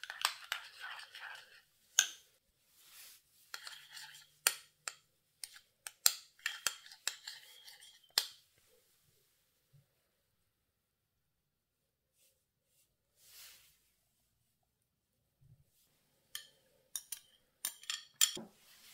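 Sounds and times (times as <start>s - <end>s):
spoon scraping jam: 0.0s - 2.2s, 3.5s - 8.4s
spoon clicking on tub: 16.4s - 18.4s.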